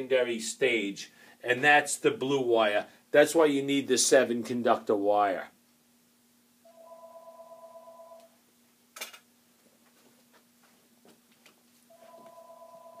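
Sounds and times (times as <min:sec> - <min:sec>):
telephone two-tone ringing: 0:06.7 - 0:08.3, 0:11.9 - 0:13.0.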